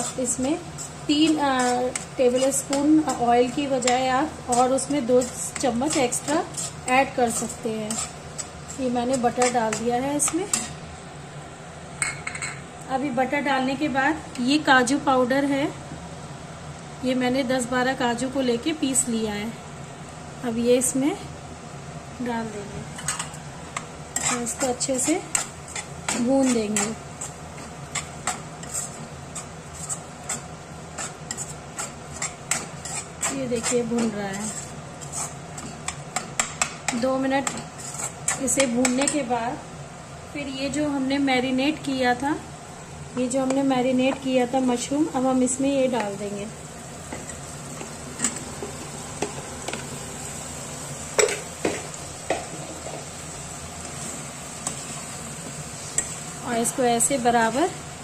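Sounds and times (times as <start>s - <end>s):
metal spatula scraping a pan: 0.0s - 10.8s, 24.1s - 36.6s, 37.4s - 39.2s
mushrooms sizzling in a pan: 0.0s - 12.0s, 16.5s - 58.0s.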